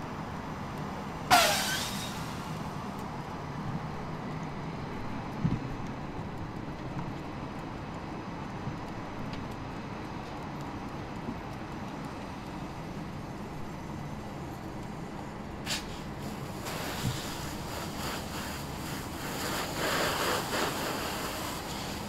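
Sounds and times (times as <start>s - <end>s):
car fire rumbling: 0.1s - 22.0s
sharp crack: 1.3s - 3.1s
fire hose spraying water: 1.3s - 3.4s, 15.6s - 22.0s.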